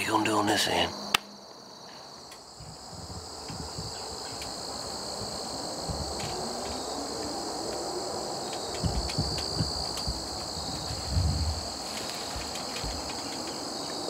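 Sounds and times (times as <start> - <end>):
insects buzzing: 0.0 - 14.0
low thumps and rumbles: 2.5 - 7.0, 8.5 - 14.0.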